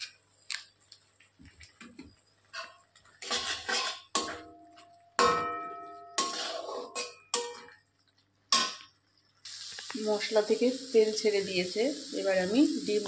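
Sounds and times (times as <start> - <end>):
metal spatula scraping paste: 2.6 - 4.3, 6.2 - 7.6
spatula knocking ringing pan: 4.1 - 7.8.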